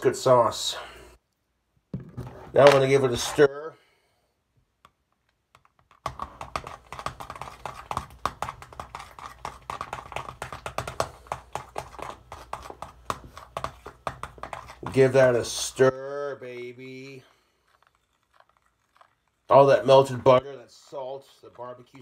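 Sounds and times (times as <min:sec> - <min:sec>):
utensil stirring sauce in a bowl: 0:05.9 - 0:22.0.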